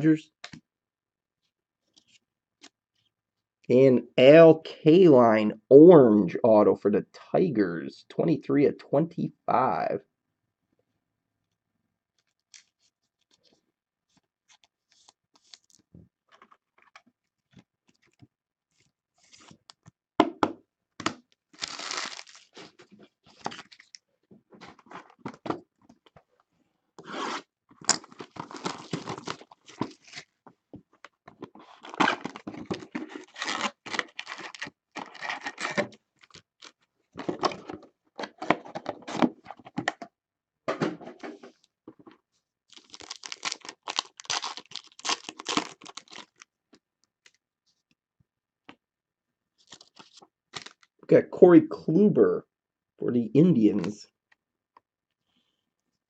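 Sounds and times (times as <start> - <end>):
wrapper tearing and crinkling: 21.5 - 23.9, 28.0 - 30.3, 31.7 - 36.8, 42.7 - 46.5, 49.6 - 50.9.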